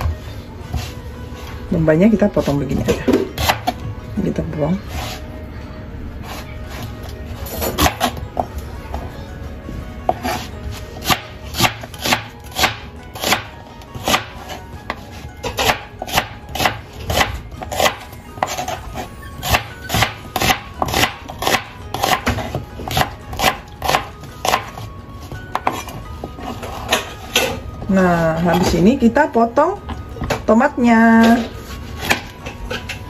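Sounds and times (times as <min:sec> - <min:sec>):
knife slicing onion: 0:02.4 - 0:03.8, 0:06.2 - 0:08.2, 0:10.0 - 0:27.6.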